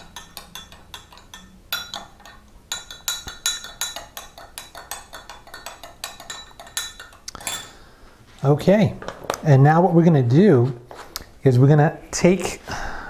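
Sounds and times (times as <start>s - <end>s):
metal spoon clinking on glass: 0.0s - 7.8s.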